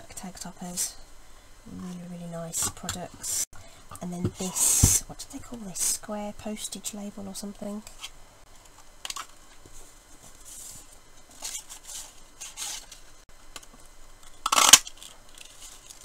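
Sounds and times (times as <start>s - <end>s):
cardstock rustling and scraping: 9.1s - 13.2s.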